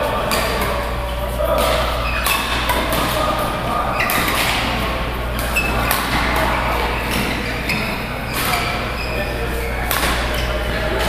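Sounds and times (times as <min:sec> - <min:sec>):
sneakers squeaking on court floor: 0:00.3 - 0:11.0
racquets striking shuttlecock: 0:01.6 - 0:03.4, 0:04.0 - 0:06.5, 0:09.8 - 0:10.5.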